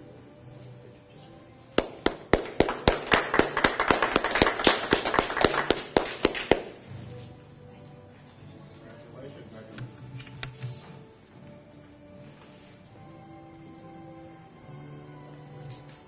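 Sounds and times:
small group clapping: 1.8 - 6.9.

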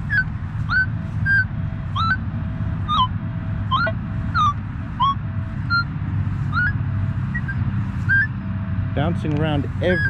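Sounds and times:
metal detector rising tones: 0.0 - 2.2, 2.8 - 8.3, 9.8 - 10.0.

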